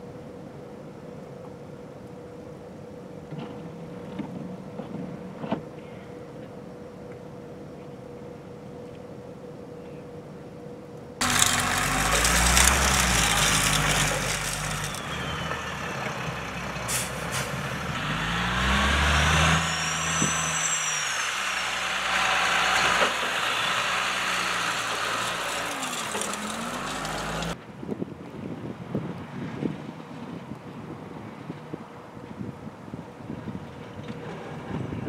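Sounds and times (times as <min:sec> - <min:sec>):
diesel truck engine running: 0:11.2 - 0:27.6
high squeal: 0:11.2 - 0:27.6.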